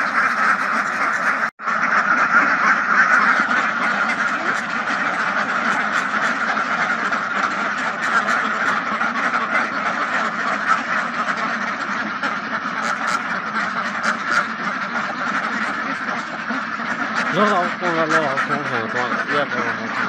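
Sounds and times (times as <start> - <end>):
flock of ducks quacking: 0.0 - 20.0.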